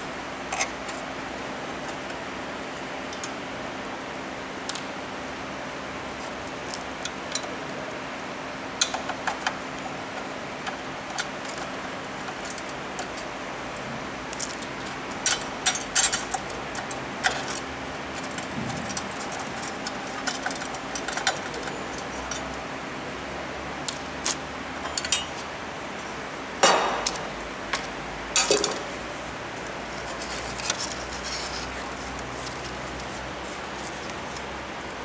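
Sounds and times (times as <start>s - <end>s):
screwdriver clinking against metal: 24.8s - 25.4s
metal parts clattering: 28.4s - 28.9s.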